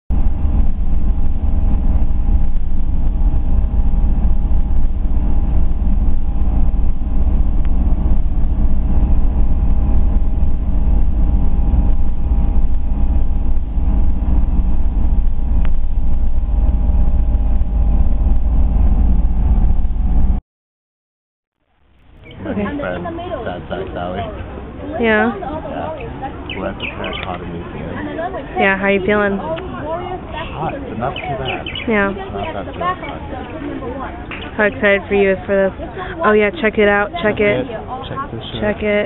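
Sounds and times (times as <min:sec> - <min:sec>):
vehicle road and engine rumble: 0:00.1 - 0:20.4, 0:21.8 - 0:39.0
faint steady tones: 0:21.8 - 0:39.0.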